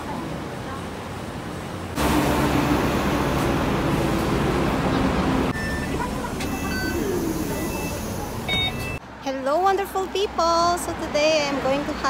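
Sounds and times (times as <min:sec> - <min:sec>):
bus engine rumbling: 0:00.0 - 0:09.1
traffic noise: 0:00.0 - 0:12.0
short high electronic beeps: 0:05.5 - 0:09.0.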